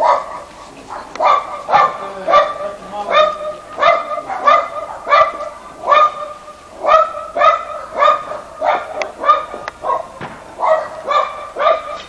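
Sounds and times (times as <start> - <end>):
dog barking: 0.0 - 12.0.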